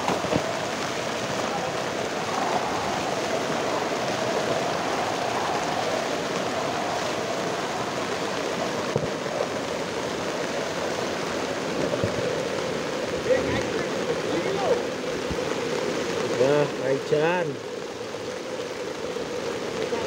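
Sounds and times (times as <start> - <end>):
floodwater rushing: 0.0 - 20.0
rain falling: 0.0 - 20.0.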